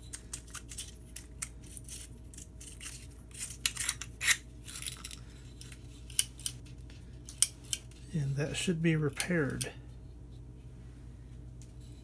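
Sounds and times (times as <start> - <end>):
porcelain and metal parts clinking: 0.1 - 6.6.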